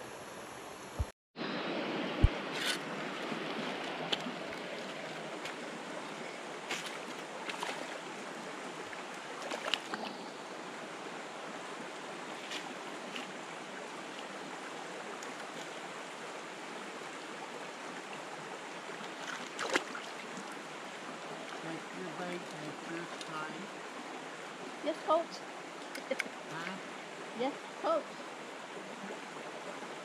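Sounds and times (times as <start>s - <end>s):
mountain stream rushing: 0.9s - 30.0s.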